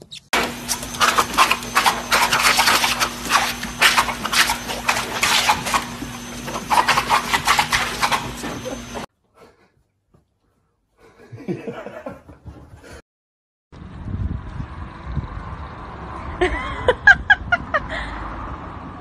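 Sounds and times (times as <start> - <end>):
dog vocalising: 0.8 - 9.0.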